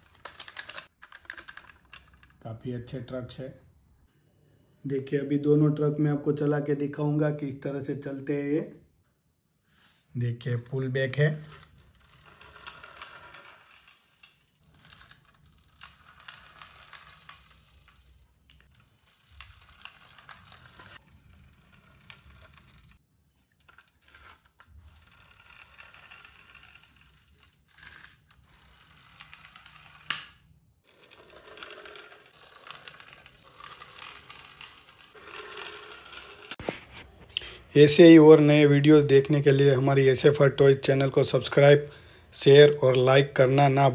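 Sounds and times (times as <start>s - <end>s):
toy friction motors clicking: 0.0s - 2.3s, 11.3s - 36.7s
toy trucks rolling on tiles: 0.0s - 2.4s, 11.2s - 36.8s.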